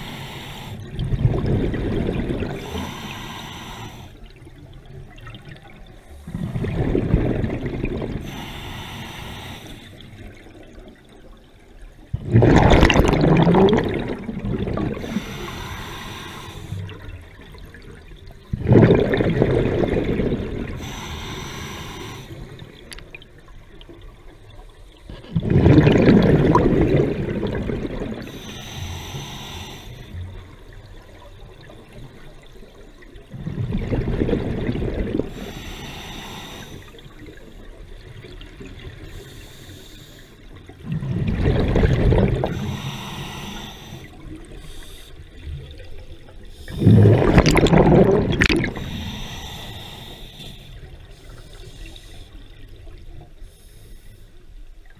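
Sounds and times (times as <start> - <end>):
regulator hiss on inhale: 0.0 - 1.0, 2.6 - 4.3, 8.2 - 10.1, 15.0 - 16.9, 20.8 - 22.7, 28.2 - 30.3, 35.3 - 37.6, 39.0 - 40.6, 42.4 - 45.4, 48.7 - 52.7, 53.4 - 54.6
exhaled bubbles rushing underwater: 0.0 - 3.6, 4.2 - 8.6, 9.8 - 28.5, 29.7 - 35.7, 40.5 - 53.3.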